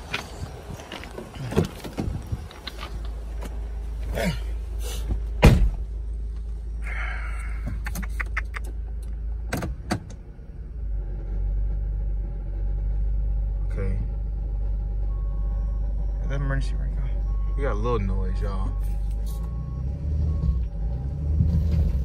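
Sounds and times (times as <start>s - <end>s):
car door shutting: 0.0s - 3.6s, 5.0s - 5.8s
car engine idling: 0.0s - 22.0s.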